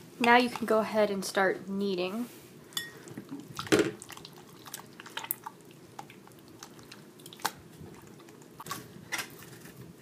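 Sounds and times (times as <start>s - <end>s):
slime squelching and popping: 3.4s - 9.3s.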